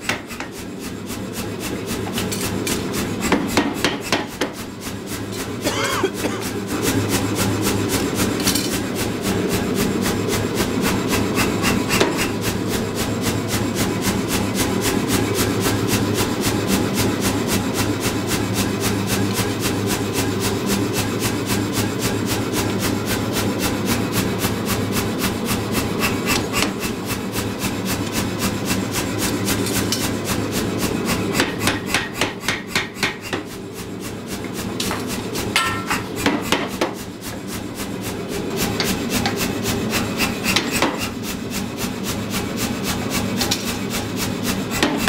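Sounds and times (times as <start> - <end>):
metal clank: 35.6 - 36.4.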